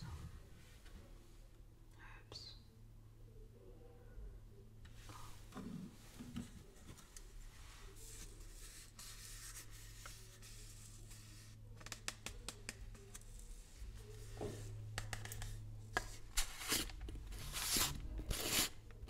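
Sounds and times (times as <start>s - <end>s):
teaspoon scraping in plastic bottle: 15.4s - 18.8s.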